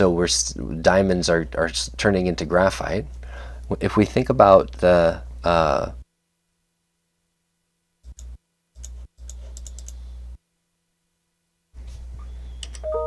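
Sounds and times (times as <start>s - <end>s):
low steady hum: 0.0s - 13.0s
computer clicks: 8.1s - 10.0s.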